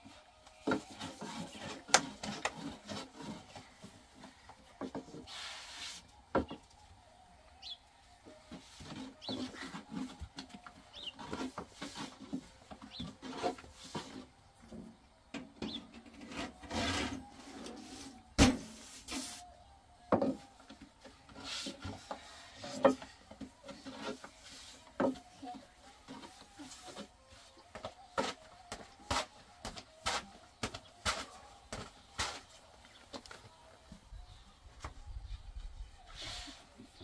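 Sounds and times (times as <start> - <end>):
rolling pin rubbing dough: 0.6 - 4.3, 8.5 - 14.8, 20.8 - 32.6.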